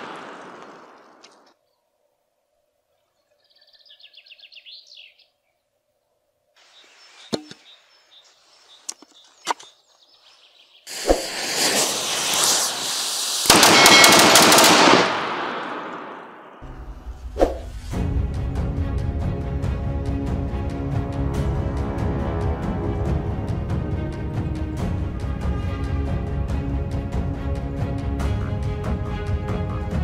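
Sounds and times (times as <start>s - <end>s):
bird chirping: 2.9s - 5.7s, 6.6s - 10.9s
rocket motors hissing: 10.9s - 13.5s.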